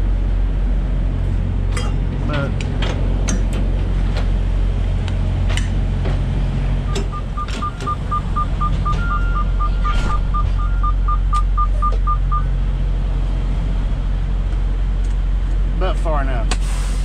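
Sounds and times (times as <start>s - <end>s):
diesel engine running: 0.0s - 17.0s
truck warning beeps: 6.8s - 12.6s.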